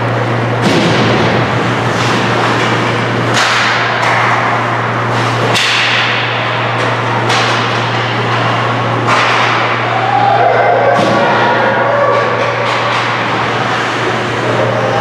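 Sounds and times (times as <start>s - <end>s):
hockey sticks and puck cracking: 1.9s - 10.1s, 11.9s - 14.2s.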